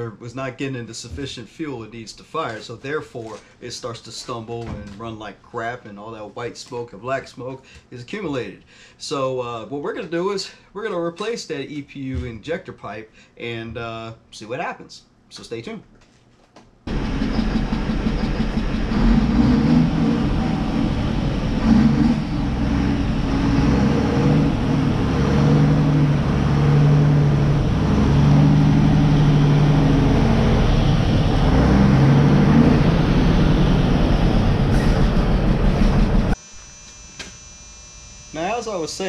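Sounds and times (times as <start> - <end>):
diesel truck engine misfiring: 16.9 - 36.4.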